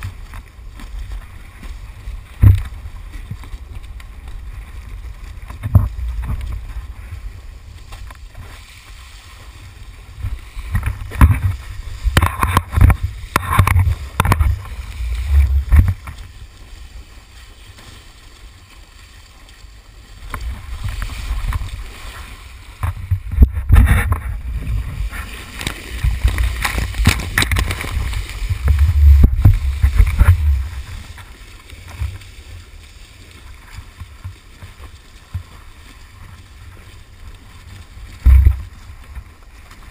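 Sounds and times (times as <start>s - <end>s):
water rushing and splashing: 0.0s - 39.9s
wind buffeting microphone: 22.7s - 31.3s.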